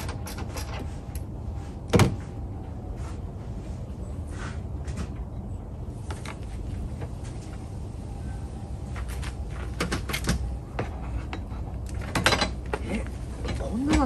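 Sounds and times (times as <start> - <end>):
hand tools clicking and clanking: 0.0 - 1.3, 9.7 - 14.0.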